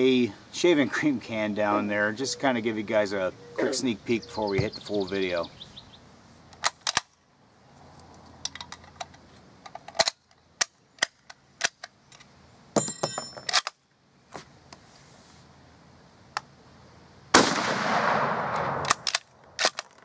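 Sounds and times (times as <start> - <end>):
rifle bolt clicking and clacking: 8.4 - 12.3, 18.6 - 20.0.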